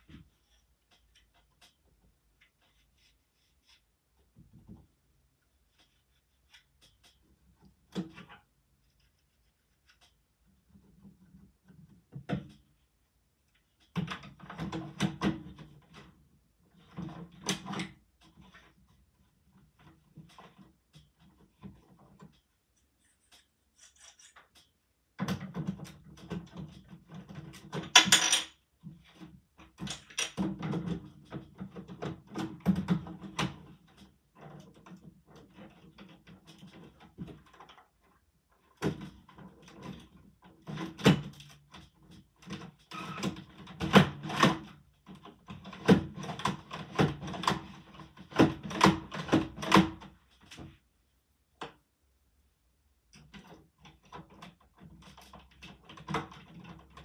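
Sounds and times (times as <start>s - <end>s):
plastic bricks clicking and rattling: 29.8s - 30.4s.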